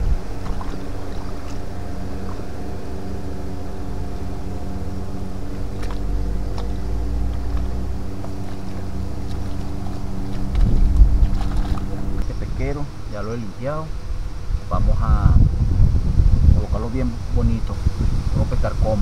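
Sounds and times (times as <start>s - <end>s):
motor running steadily: 0.0s - 18.7s
low rumble: 0.0s - 18.8s.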